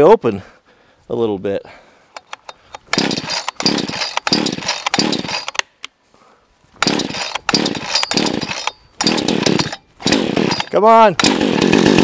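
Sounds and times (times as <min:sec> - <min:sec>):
chainsaw recoil starter pulls: 0:02.2 - 0:05.7, 0:06.8 - 0:12.0
engine turning over: 0:02.4 - 0:05.6, 0:06.8 - 0:12.0.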